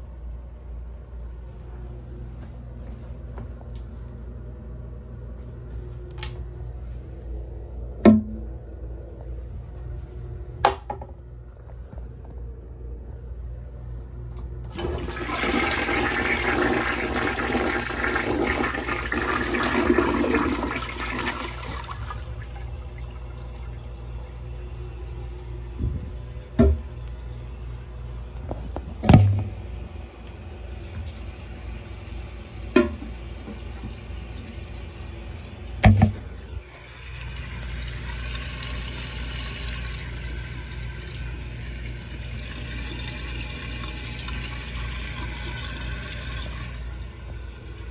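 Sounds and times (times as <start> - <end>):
toilet flushing: 14.6 - 47.9
hiss of toilet refilling: 14.7 - 25.7, 30.5 - 47.9.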